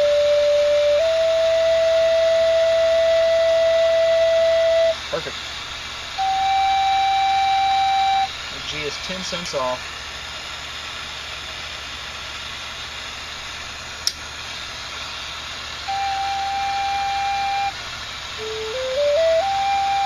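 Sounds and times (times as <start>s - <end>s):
flute notes: 0.0s - 5.4s, 6.1s - 8.5s, 15.8s - 20.0s
fire hissing: 0.0s - 20.0s
sharp click: 14.0s - 14.2s.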